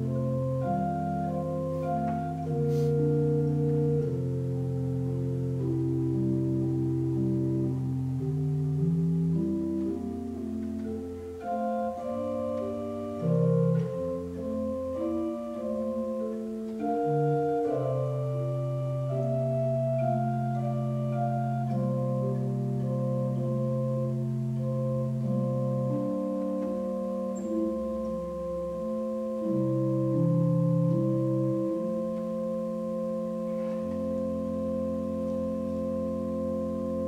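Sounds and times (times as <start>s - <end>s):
pipe organ playing chords: 0.0s - 37.0s.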